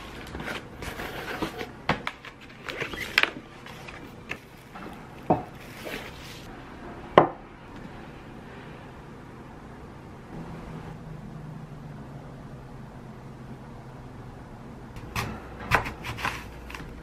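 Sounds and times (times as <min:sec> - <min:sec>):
items knocking on hard table: 0:04.8 - 0:05.6.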